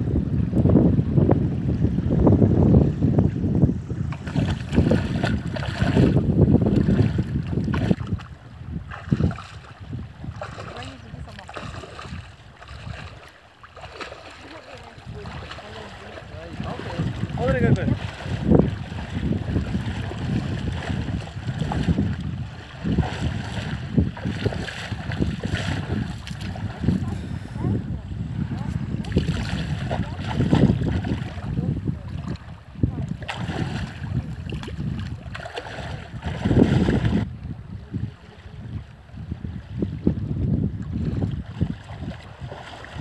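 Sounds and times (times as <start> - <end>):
wind buffeting microphone: 0.0 - 43.0
water sloshing around legs: 4.1 - 37.3, 40.8 - 43.0.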